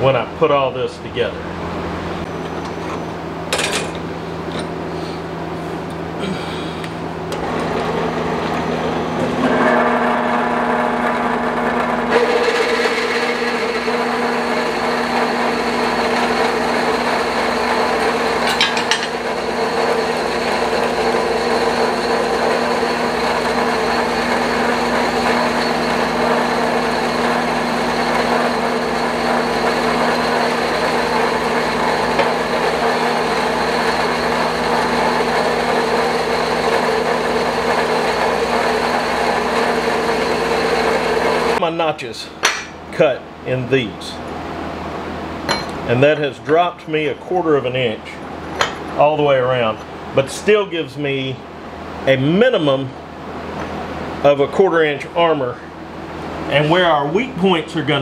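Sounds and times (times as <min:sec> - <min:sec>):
band saw cutting metal: 0:07.3 - 0:41.6.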